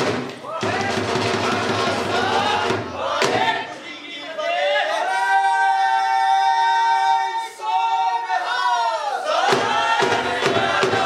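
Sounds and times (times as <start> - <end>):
sharp knocks: 9.4 - 11.0.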